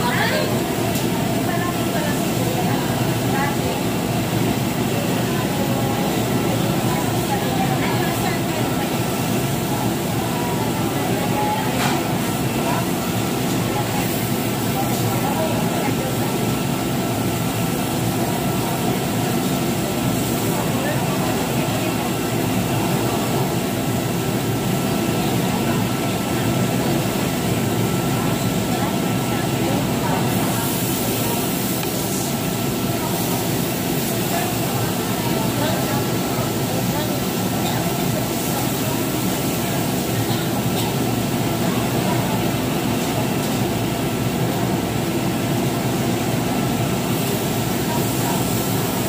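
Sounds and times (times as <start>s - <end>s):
exhaust fan rushing: 0.0s - 49.0s
faint background chatter: 0.0s - 49.0s.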